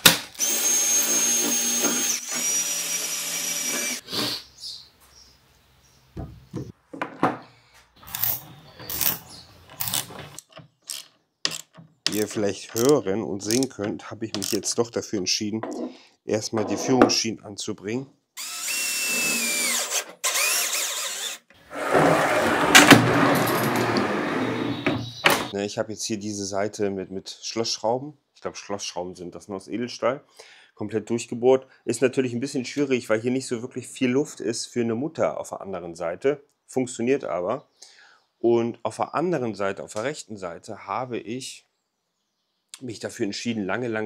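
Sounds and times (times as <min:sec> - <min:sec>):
cordless drill running: 0:00.4 - 0:04.0, 0:18.4 - 0:21.5
tools clicking and knocking: 0:08.1 - 0:15.9.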